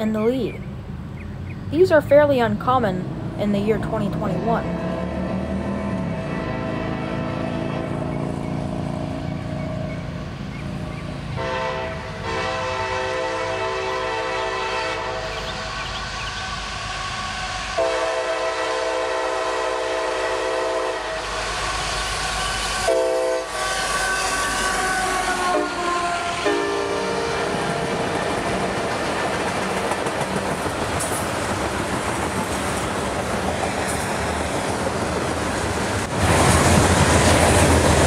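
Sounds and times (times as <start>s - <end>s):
locomotive engine: 0.0s - 38.0s
locomotive air horn blasts: 4.3s - 8.1s, 11.4s - 15.3s, 16.7s - 28.1s
train wheels clattering on rails: 27.4s - 38.0s.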